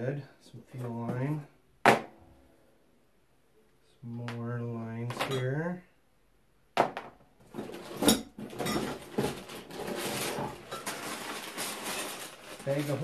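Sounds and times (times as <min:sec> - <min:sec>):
parts knocking on wooden table: 0:06.8 - 0:07.2
rustling and handling noise: 0:07.4 - 0:13.0.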